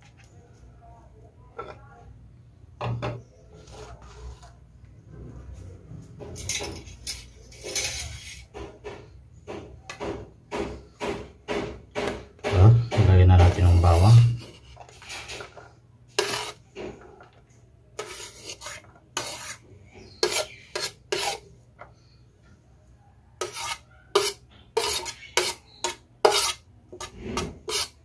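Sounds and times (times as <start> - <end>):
metal spoon scraping a plate: 6.4 - 8.5, 13.5 - 16.6, 18.0 - 21.5, 23.4 - 28.0.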